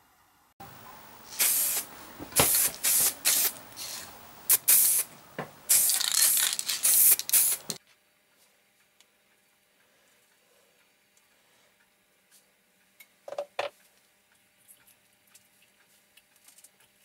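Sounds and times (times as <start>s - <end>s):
spray-paint can spraying: 1.3s - 5.1s, 5.7s - 7.8s.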